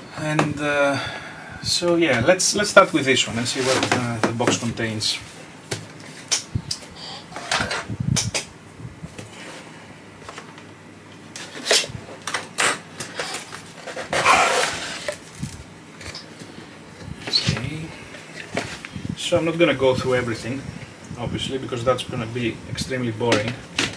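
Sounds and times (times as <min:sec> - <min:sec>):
cardboard scraping rustle: 0:03.2 - 0:04.7, 0:13.1 - 0:15.6.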